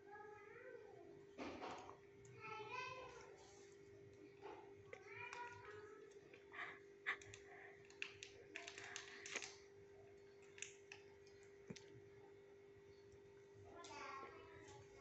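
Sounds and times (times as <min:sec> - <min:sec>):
steady low hum: 0:00.0 - 0:15.0
wrapper crinkling: 0:07.2 - 0:09.7.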